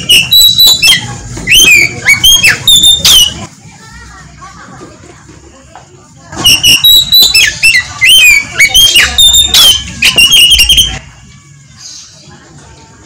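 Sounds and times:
bird singing whistled notes: 0.0 - 3.5, 6.4 - 12.2.

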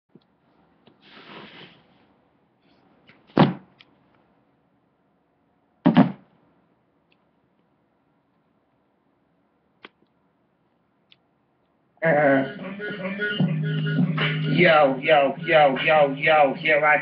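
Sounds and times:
soft rustle: 0.4 - 2.9
loud thuds: 5.9 - 6.3.

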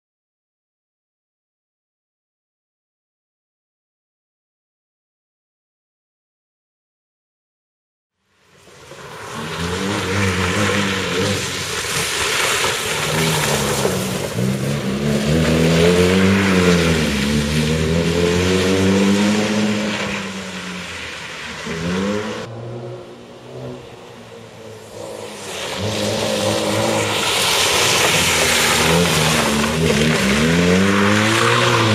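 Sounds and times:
tyres spraying wet gravel: 8.3 - 22.5, 24.1 - 31.9
rally car engine revving: 8.9 - 31.9.

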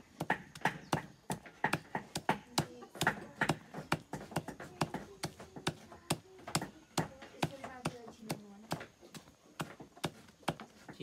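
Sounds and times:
knife chopping on wooden block: 0.1 - 11.0.

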